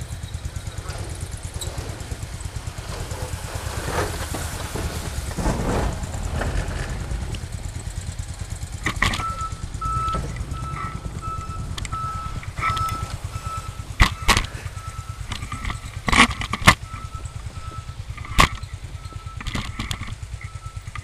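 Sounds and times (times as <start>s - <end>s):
tractor engine idling: 0.0s - 21.0s
short beeps: 9.1s - 15.9s.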